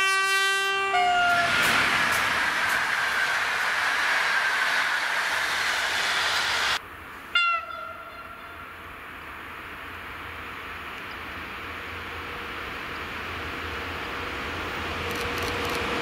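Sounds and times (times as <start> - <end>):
locomotive horn blast: 0.0 - 1.9, 7.3 - 8.7
train wheels rushing on rail: 0.9 - 16.0.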